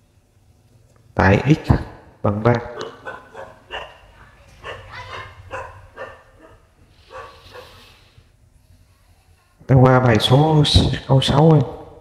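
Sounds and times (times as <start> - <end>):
dog barking: 2.7 - 7.9.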